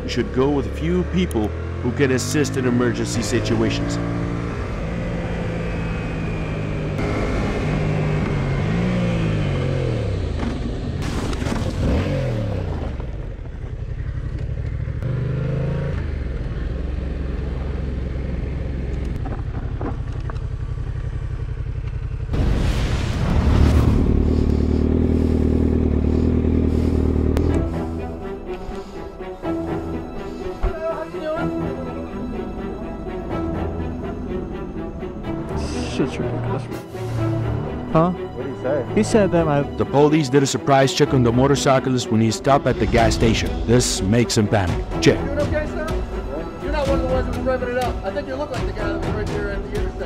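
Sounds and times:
motorcycle engine pulling and shifting: 0:00.0 - 0:22.4, 0:24.0 - 0:28.6
sport bike engine idling: 0:13.2 - 0:15.1, 0:16.0 - 0:22.3, 0:24.4 - 0:28.0.

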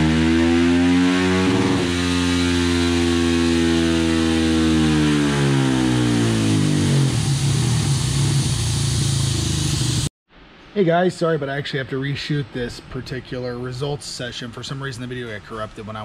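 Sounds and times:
motorcycle engine revving on dyno: 0:00.0 - 0:10.1.

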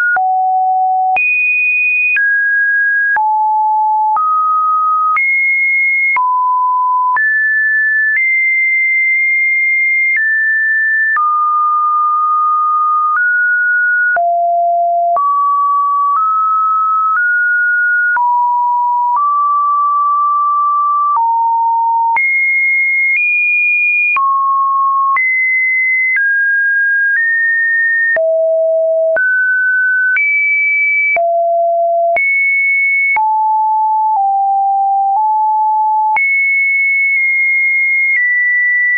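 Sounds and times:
sine beeps changing pitch: 0:03.0 - 0:23.2, 0:28.1 - 0:32.4, 0:33.0 - 0:38.9.

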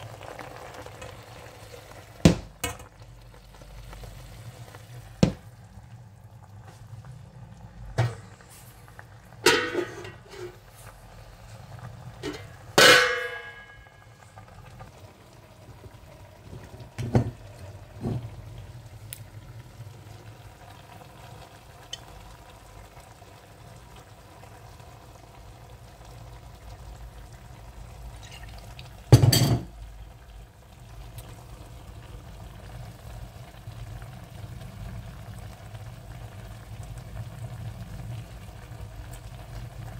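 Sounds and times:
clinks against a metal pot: 0:09.4 - 0:10.6, 0:12.2 - 0:13.9.

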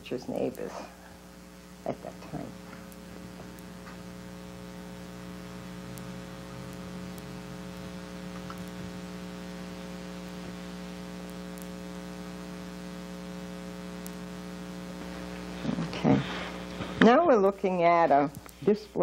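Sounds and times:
electrical hum: 0:00.0 - 0:19.0
faint hiss: 0:00.0 - 0:19.0
faint ticks: 0:05.9 - 0:09.4, 0:10.3 - 0:15.5, 0:18.1 - 0:18.7.

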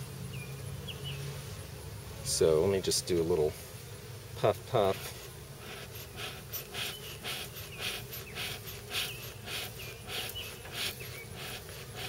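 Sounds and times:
smoker bellows puffing air: 0:04.8 - 0:12.0.

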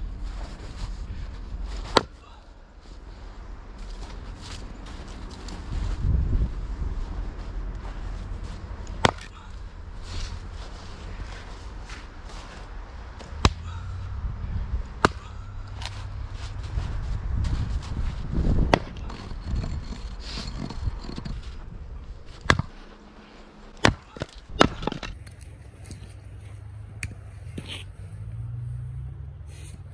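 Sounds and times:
axe splitting wood: 0:01.9 - 0:02.3, 0:08.8 - 0:09.6, 0:13.2 - 0:13.8, 0:15.0 - 0:15.9, 0:18.6 - 0:21.4, 0:22.3 - 0:22.8, 0:23.8 - 0:25.2.

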